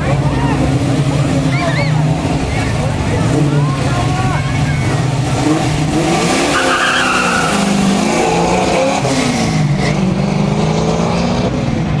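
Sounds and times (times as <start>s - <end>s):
car engine revving: 0.0s - 12.0s
tyres squealing: 3.3s - 7.9s.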